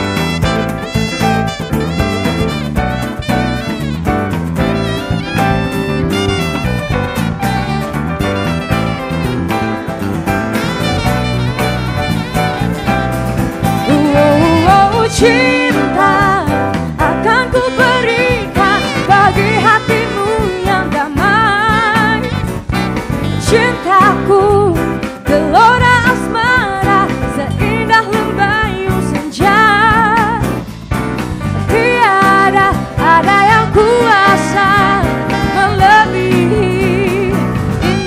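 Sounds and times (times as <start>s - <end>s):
song with vibrato singing and band: 10.7s - 38.0s.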